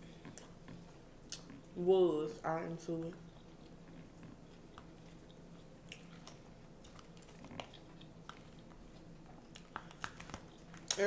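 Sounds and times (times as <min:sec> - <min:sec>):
chewing salad: 0:00.0 - 0:01.8, 0:02.7 - 0:11.0.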